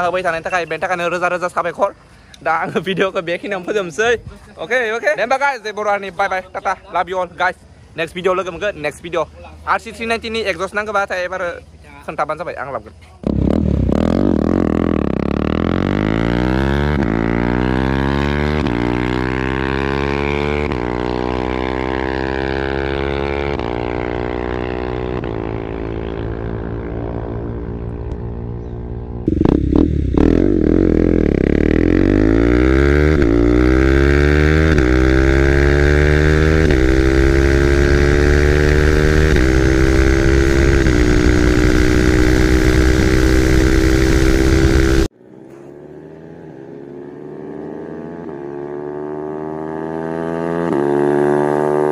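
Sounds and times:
motorcycle engine accelerating: 13.2s - 51.9s.

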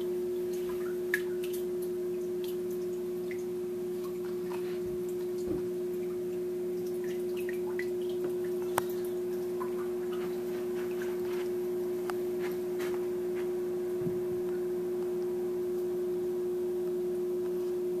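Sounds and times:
water dripping and trickling: 0.0s - 12.6s
aquarium equipment hum: 0.0s - 18.0s.

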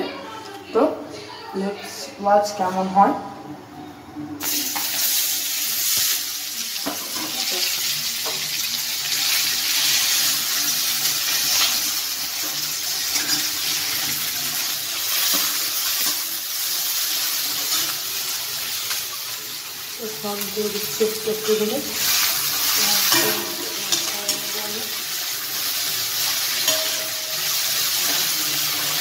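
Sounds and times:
food sizzling in oil: 4.4s - 29.0s.

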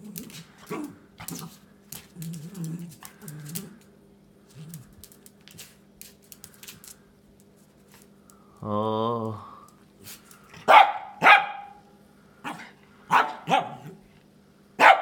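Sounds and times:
dog growling: 0.0s - 3.9s, 4.5s - 5.0s.

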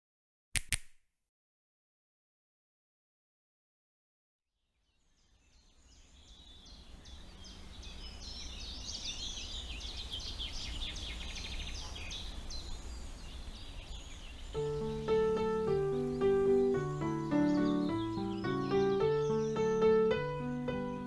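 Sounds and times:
nightingale singing: 5.0s - 21.0s.

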